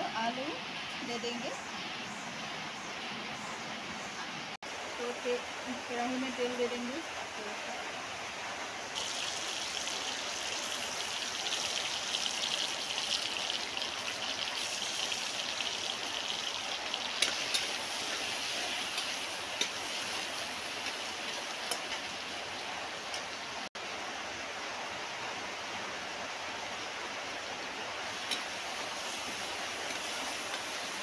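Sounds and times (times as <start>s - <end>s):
onion sizzling in hot oil: 8.9s - 23.4s, 28.1s - 31.0s.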